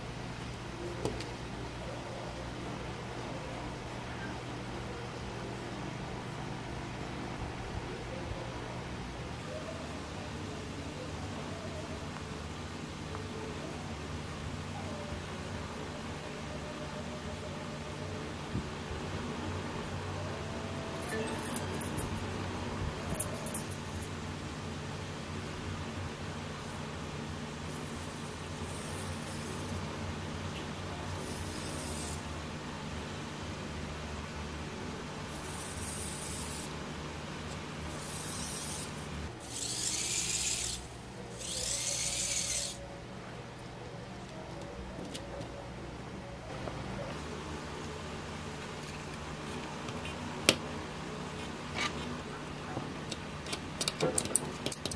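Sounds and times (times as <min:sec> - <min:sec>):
room noise hum and hiss: 0:00.0 - 0:54.9
small electric motor whirring: 0:27.7 - 0:29.8, 0:31.1 - 0:32.3, 0:35.3 - 0:36.8, 0:37.9 - 0:42.8.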